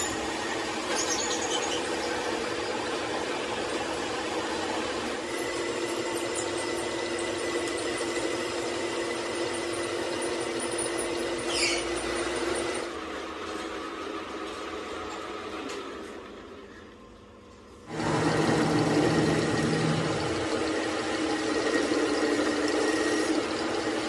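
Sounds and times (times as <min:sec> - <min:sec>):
metal lathe whirring: 0:00.0 - 0:13.0, 0:17.9 - 0:24.0.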